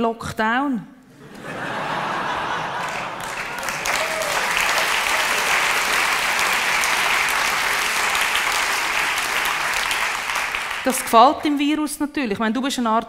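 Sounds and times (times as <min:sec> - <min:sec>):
audience applause: 0:01.3 - 0:11.5.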